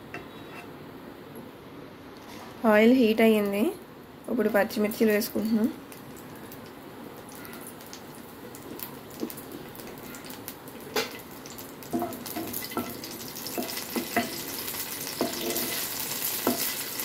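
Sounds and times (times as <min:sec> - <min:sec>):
chillies sizzling in hot oil: 0:04.4 - 0:17.0.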